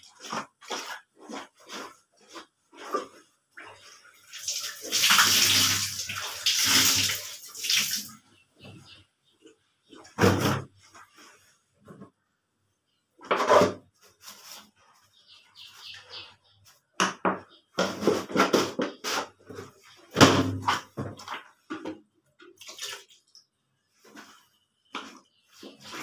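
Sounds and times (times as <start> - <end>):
hand washing clothes in bucket: 0.0 - 8.9, 9.9 - 12.2, 17.8 - 26.0.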